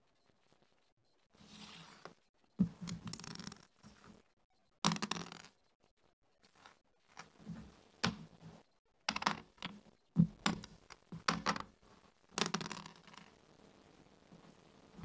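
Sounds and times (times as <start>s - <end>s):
dice rattling onto board: 4.9s - 5.5s, 9.1s - 9.7s, 12.4s - 13.3s
checkers clicking on wooden board: 4.9s - 5.6s, 9.1s - 11.7s, 12.4s - 13.3s.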